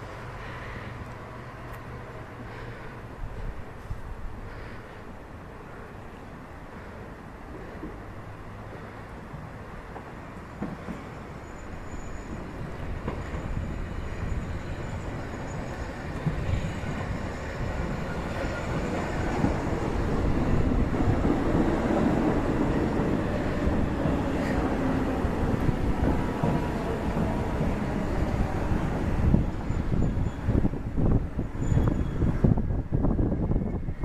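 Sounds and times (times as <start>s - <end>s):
electric train running in: 9.9s - 34.0s.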